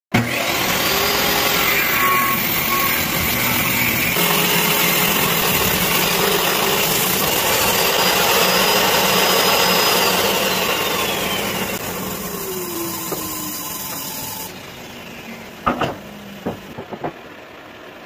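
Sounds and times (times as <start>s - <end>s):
table saw motor whine: 0.1s - 16.7s
saw blade ripping wood: 0.2s - 14.5s.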